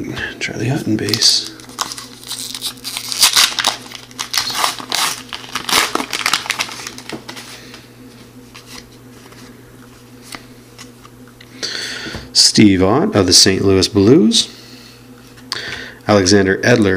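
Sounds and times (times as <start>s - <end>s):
card pack wrapper tearing and crinkling: 1.0s - 7.4s.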